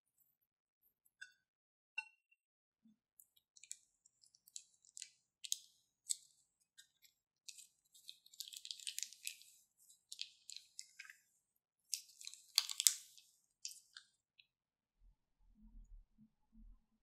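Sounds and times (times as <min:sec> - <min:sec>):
plastic piping bag crinkling: 0:03.6 - 0:14.2
wet clicks of slime: 0:11.9 - 0:14.1.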